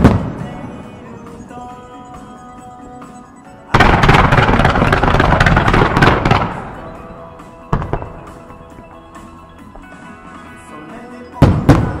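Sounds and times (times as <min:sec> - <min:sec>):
fireworks bangs and crackling: 0:00.0 - 0:01.6, 0:03.7 - 0:09.9, 0:11.3 - 0:12.0
show music: 0:00.0 - 0:12.0.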